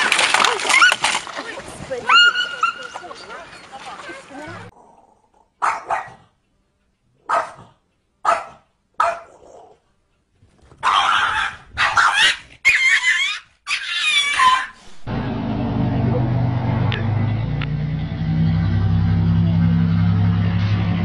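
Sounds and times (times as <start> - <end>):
small dog barking: 5.6 - 6.3, 7.2 - 9.8, 10.8 - 12.9.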